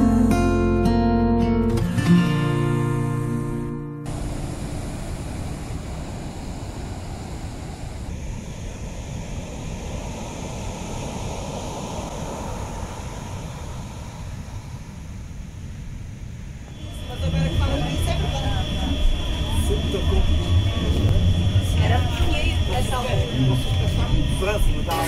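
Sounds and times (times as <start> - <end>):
guitar music: 0.0 - 4.1
wind rumbling on microphone: 4.1 - 24.9
ocean waves breaking: 4.1 - 25.0.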